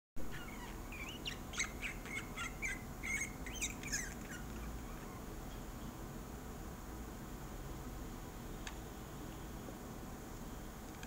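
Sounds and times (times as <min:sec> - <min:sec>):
budgerigar chirping and warbling: 0:00.2 - 0:05.3.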